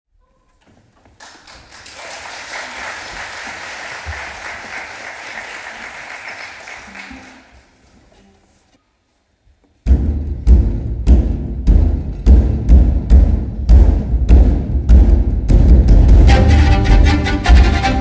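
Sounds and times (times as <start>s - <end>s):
audience applauding: 1.1s - 7.8s.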